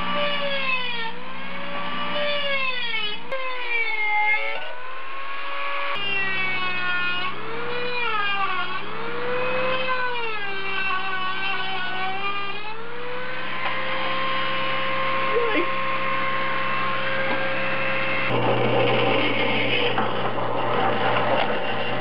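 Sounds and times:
rotary tool cutting metal: 0.0s - 22.0s
drill press running: 4.4s - 22.0s.

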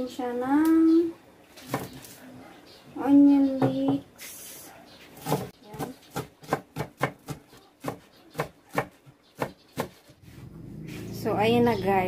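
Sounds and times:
knife chopping on wooden board: 5.2s - 10.0s.

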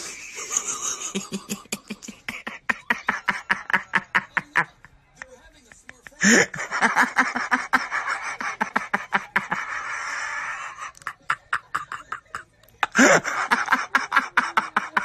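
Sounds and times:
people laughing and shrieking: 6.2s - 15.0s.

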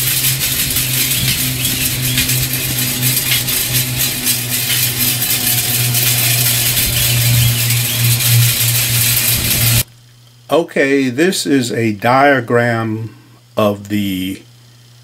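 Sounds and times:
low hum: 0.0s - 9.9s
metal pinwheels rattling: 0.0s - 9.9s.

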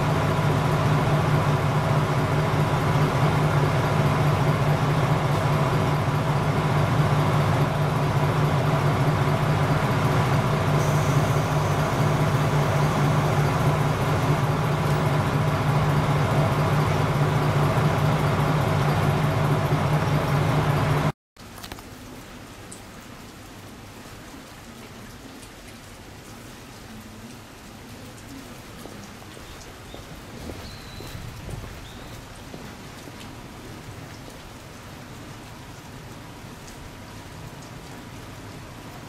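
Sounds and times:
diesel railcar engine idling: 0.0s - 21.1s.

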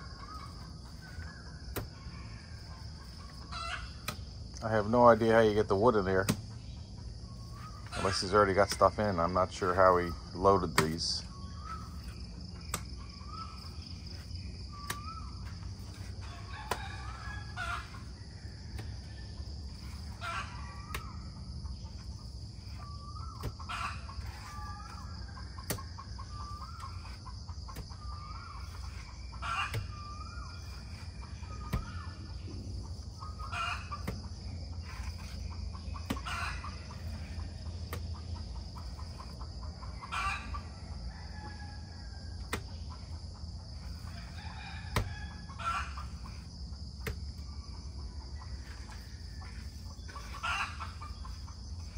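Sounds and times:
high insect drone: 0.0s - 51.9s
chickens clucking: 2.8s - 6.2s, 14.1s - 18.1s, 18.8s - 40.8s, 45.0s - 51.9s.

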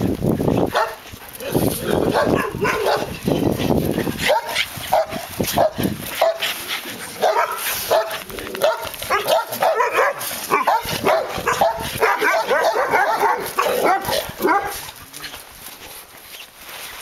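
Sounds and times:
dogs barking and yipping: 0.0s - 15.4s.

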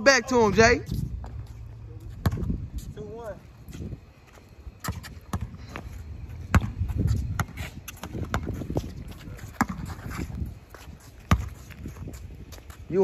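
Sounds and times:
players' footsteps: 0.4s - 13.0s
basketball bouncing on court: 2.2s - 2.6s, 4.8s - 5.6s, 6.4s - 8.8s, 9.5s - 9.9s, 11.3s - 11.6s.

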